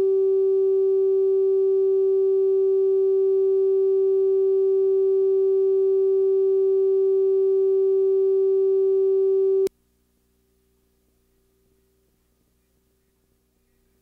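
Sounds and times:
line-up test tone: 0.0s - 9.7s.

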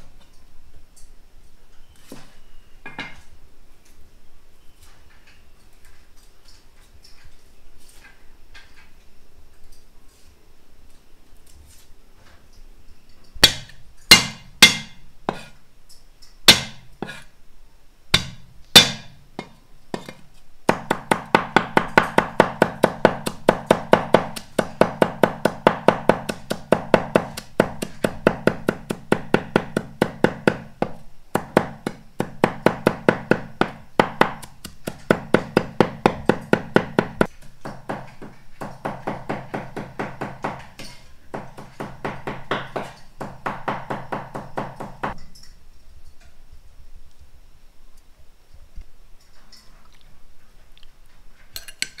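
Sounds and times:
knife chopping on wooden board: 13.4s - 15.6s, 16.5s - 17.2s, 18.2s - 45.2s.

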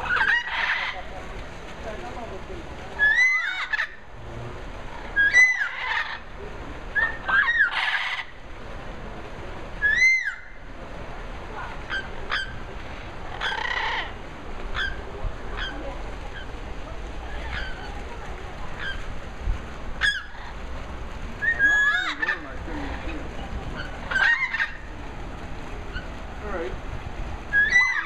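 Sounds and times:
parrots whistling calls: 0.0s - 1.0s, 3.0s - 4.0s, 5.2s - 6.2s, 6.9s - 8.3s, 9.8s - 10.6s, 13.3s - 15.0s, 21.4s - 23.0s, 23.8s - 24.8s, 27.5s - 28.0s
parrots squawking: 0.0s - 1.1s, 3.0s - 4.0s, 5.0s - 6.3s, 6.9s - 8.4s, 9.8s - 10.6s, 11.9s - 12.6s, 13.3s - 15.0s, 15.6s - 16.5s, 17.3s - 18.0s, 18.8s - 19.0s, 20.0s - 20.6s, 21.4s - 24.9s, 27.5s - 28.0s.

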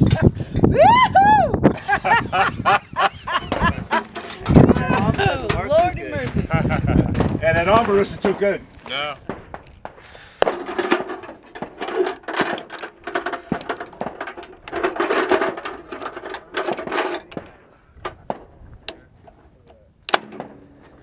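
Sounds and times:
metal cartridges clinking: 3.9s - 5.7s, 9.2s - 19.0s
sharp metal clack: 20.1s - 20.8s.

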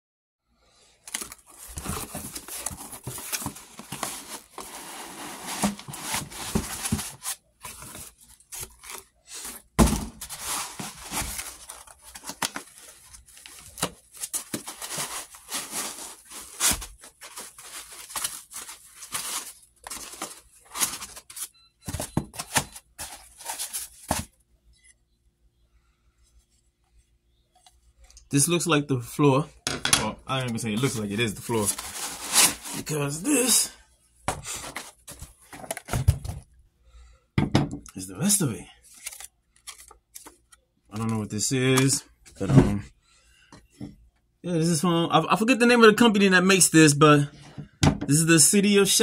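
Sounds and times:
cardboard tearing and scraping: 1.1s - 24.3s, 30.8s - 33.5s
knocks against cardboard box: 9.8s - 10.2s.

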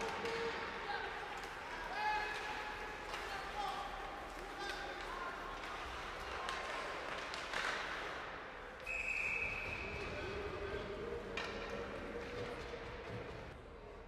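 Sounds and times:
referee's whistle: 8.8s - 10.0s.

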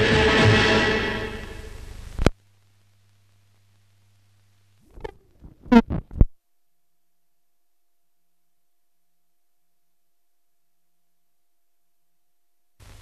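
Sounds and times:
closing music: 0.0s - 1.7s
faint low hum: 1.2s - 13.0s
short pops and thumps: 4.9s - 6.4s.

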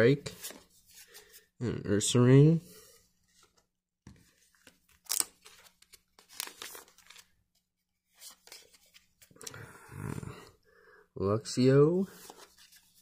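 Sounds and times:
wrapper crinkling and tearing: 5.0s - 7.3s.

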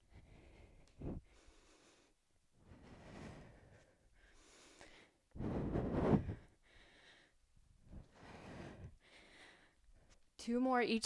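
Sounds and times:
woman breathing hard: 0.0s - 10.2s.

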